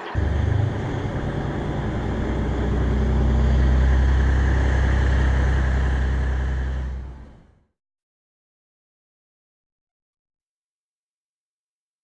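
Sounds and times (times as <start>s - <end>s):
rail running noise: 0.0s - 7.5s
diesel railcar engine drone: 0.0s - 7.6s.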